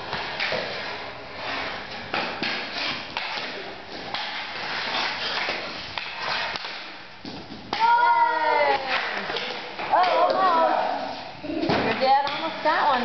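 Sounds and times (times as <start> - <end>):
hockey sticks scraping on concrete: 0.0 - 13.0.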